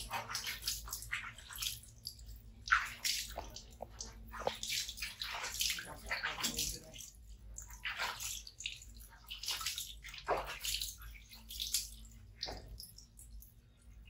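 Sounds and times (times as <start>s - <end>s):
water splashing in plastic basin: 0.0s - 13.5s.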